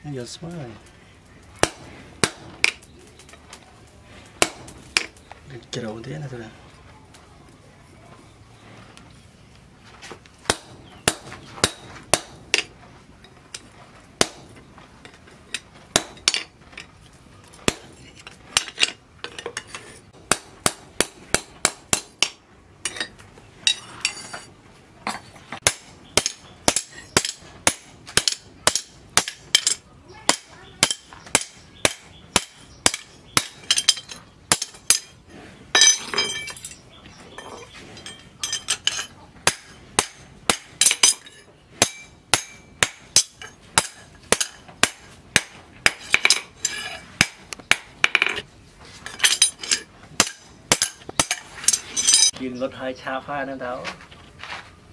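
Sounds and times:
hammer striking metal on anvil: 25.6s - 35.1s, 38.1s - 48.4s, 49.2s - 52.3s.

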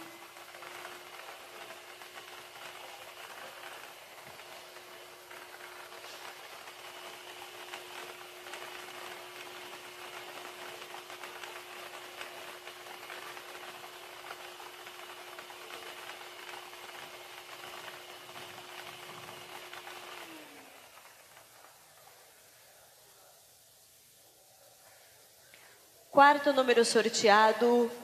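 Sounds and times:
blower humming: 0.0s - 28.0s.

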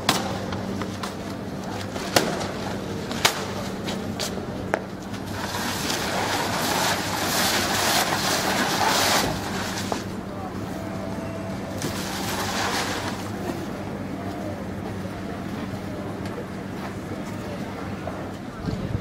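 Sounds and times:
boxes scraping on stone paving: 5.2s - 10.1s, 11.8s - 13.4s.

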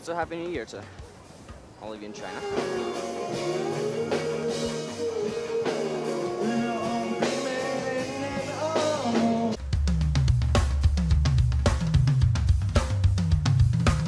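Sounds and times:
loud drum beat with deep bass: 0.0s - 14.0s
man singing: 2.1s - 9.6s
rock guitar: 2.1s - 9.6s.

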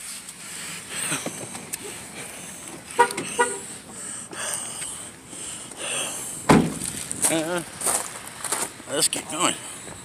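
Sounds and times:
car horn toots: 2.9s - 3.7s
loud thump: 6.5s - 7.0s.

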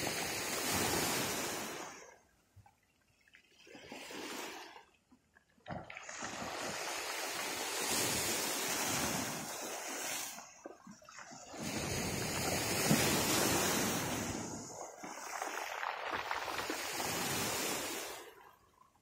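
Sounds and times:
sea waves crashing on shore: 0.0s - 2.2s, 5.9s - 18.7s.

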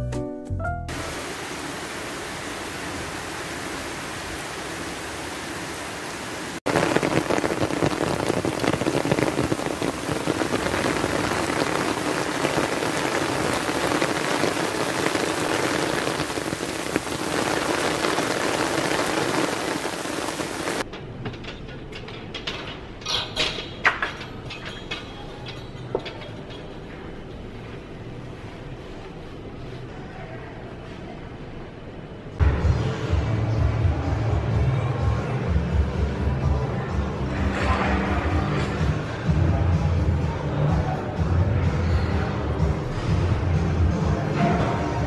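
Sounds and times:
steady rain hissing: 0.9s - 20.9s.

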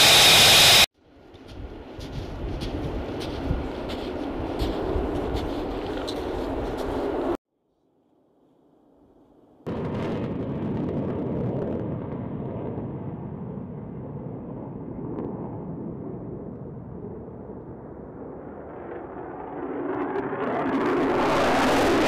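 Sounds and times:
jet engine roar: 0.0s - 0.9s, 9.7s - 22.0s.

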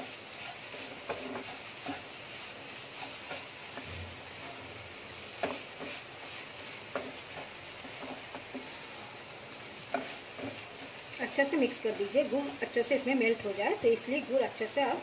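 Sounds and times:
spatula tapping pan: 0.0s - 2.2s, 2.9s - 12.7s
steady sizzle: 0.0s - 15.0s
wooden spatula stirring in pan: 0.0s - 15.0s.

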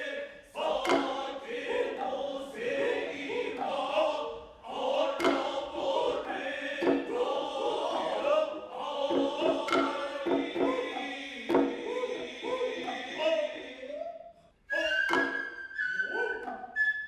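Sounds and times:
male chorus chanting: 0.0s - 16.6s
sharp drum strokes: 0.6s - 13.3s.

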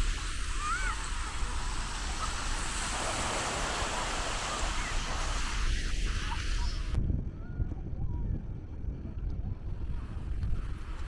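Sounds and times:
small waves washing on shore: 0.0s - 7.0s
wind rumble on microphone: 0.0s - 11.0s.

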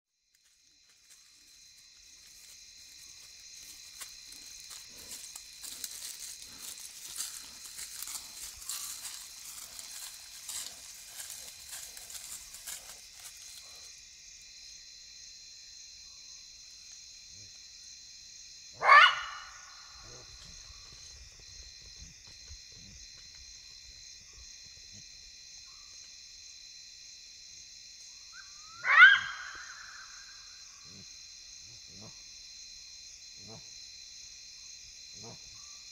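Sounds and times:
night insects trilling: 0.2s - 35.9s
jackal barking: 18.8s - 20.3s, 28.8s - 30.0s.

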